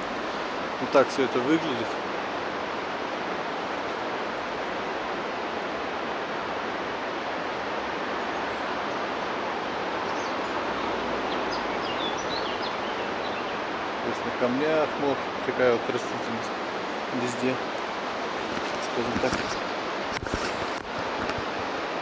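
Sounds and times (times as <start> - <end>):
mountain river rushing: 0.0 - 22.0
bird chirps: 10.0 - 13.6.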